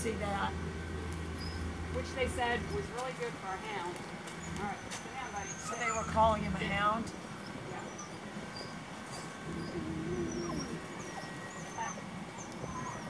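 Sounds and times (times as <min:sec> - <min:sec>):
dog whining: 0:01.4 - 0:01.7, 0:04.4 - 0:13.0.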